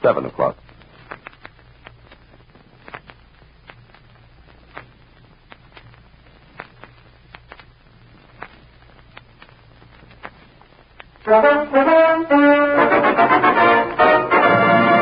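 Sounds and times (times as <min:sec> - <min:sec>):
faint hiss: 0:00.0 - 0:15.0
low hum: 0:00.0 - 0:15.0
record pops and crackles: 0:00.0 - 0:15.0.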